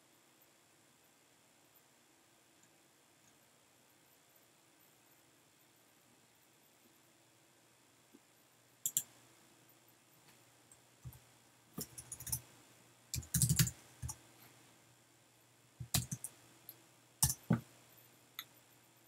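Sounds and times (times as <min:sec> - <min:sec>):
computer keyboard keystrokes: 0:08.8 - 0:09.1, 0:11.8 - 0:12.4, 0:13.2 - 0:14.2, 0:15.8 - 0:16.3, 0:17.2 - 0:17.6.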